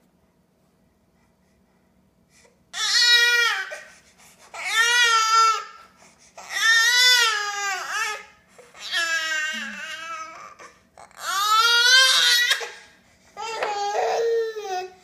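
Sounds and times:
baby crying: 2.8s - 3.9s, 4.6s - 5.8s, 6.4s - 15.0s.

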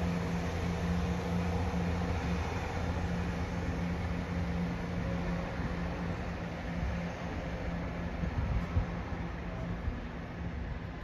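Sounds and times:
diesel train engine droning: 0.0s - 11.0s.

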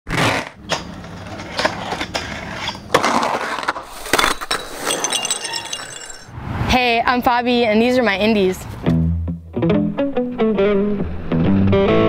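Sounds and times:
skateboard rolling: 0.1s - 4.9s.

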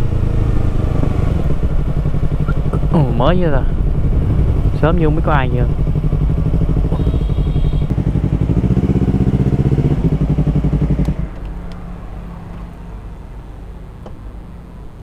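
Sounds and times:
motorcycle engine idling: 0.0s - 11.7s.

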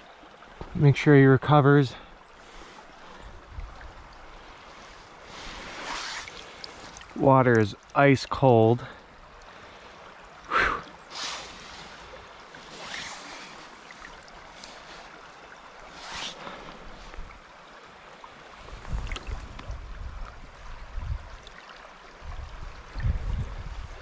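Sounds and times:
creek water running: 0.0s - 24.0s
water splashes: 0.0s - 24.0s.

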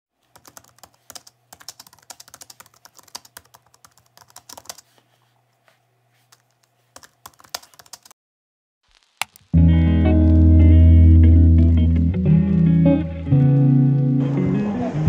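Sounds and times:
keyboard typing clicks: 0.3s - 4.8s, 6.3s - 8.1s.

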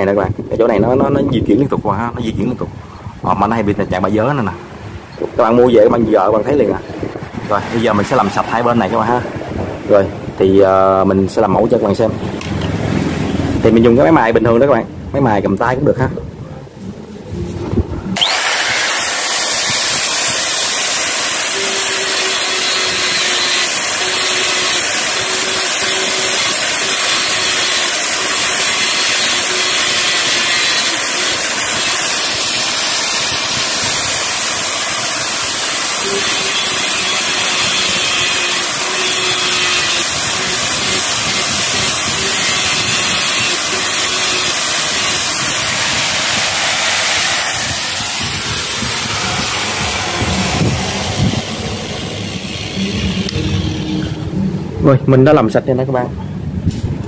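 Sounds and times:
angle grinder grinding metal: 18.2s - 54.4s.

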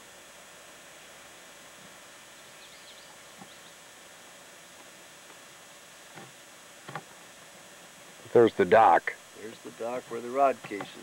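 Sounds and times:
recording hiss: 0.0s - 11.0s
small bird chirps: 2.3s - 3.8s.

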